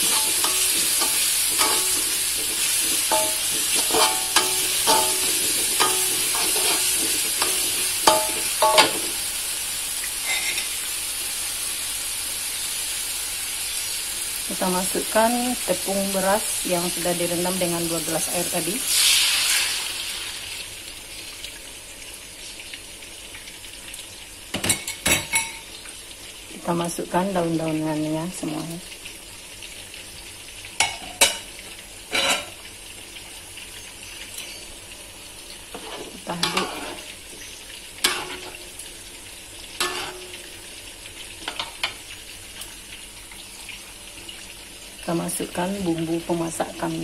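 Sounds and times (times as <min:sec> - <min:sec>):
spatula stirring sauce in a wok: 0:00.0 - 0:09.0, 0:35.7 - 0:38.8, 0:39.6 - 0:40.4
spatula scraping a wok: 0:00.0 - 0:09.2, 0:10.2 - 0:10.7, 0:32.1 - 0:32.6, 0:35.7 - 0:38.7, 0:39.8 - 0:40.4
liquid sizzling in hot wok: 0:00.0 - 0:47.0.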